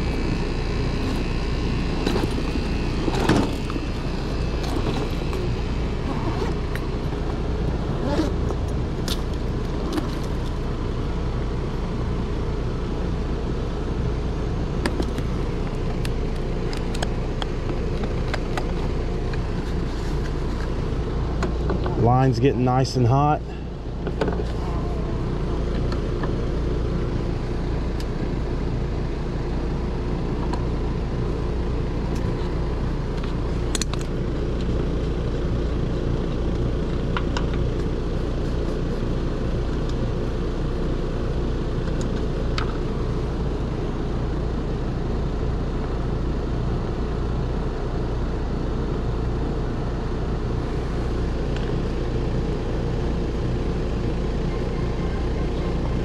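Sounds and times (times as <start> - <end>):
heat pump unit humming: 0.0 - 56.0
hoses and probes clicking: 33.2 - 34.7.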